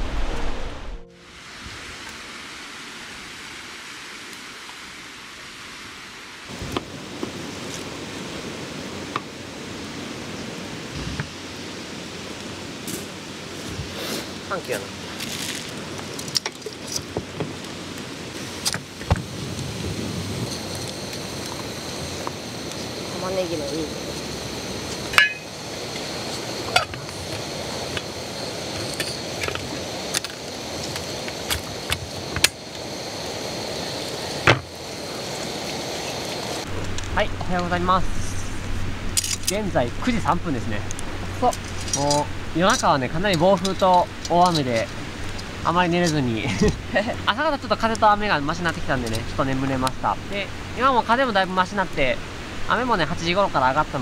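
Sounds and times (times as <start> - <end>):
steady hiss: 0.0 - 54.0
wind: 0.0 - 54.0
metal lid clinking on pot: 25.1 - 25.5.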